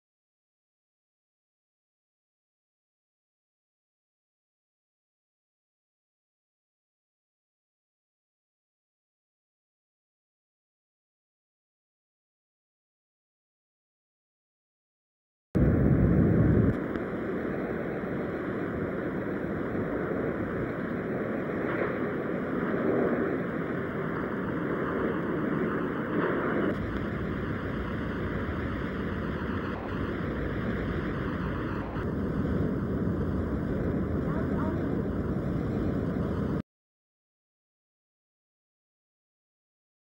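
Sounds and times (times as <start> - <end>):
low rumble: 15.6 - 36.6.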